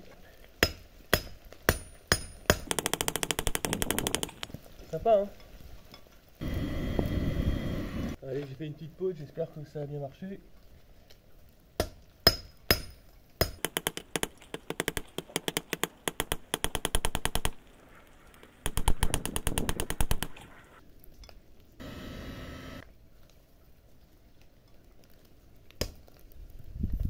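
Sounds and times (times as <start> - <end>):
hammer striking hot steel: 0.6 - 4.5, 11.8 - 14.0.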